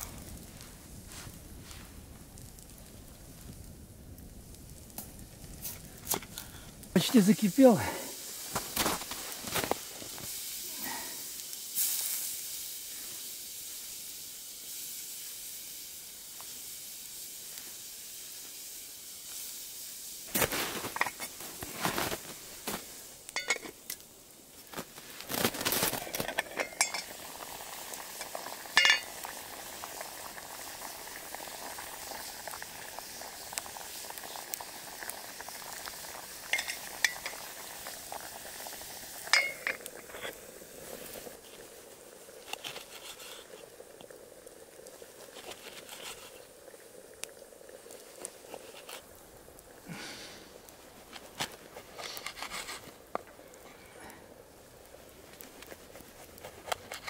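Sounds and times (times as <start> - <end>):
boiling water hissing: 0.0 - 57.0
metal pot and utensils clinking: 23.3 - 23.9, 25.7 - 27.4, 28.1 - 29.3, 36.5 - 37.5, 39.2 - 40.4.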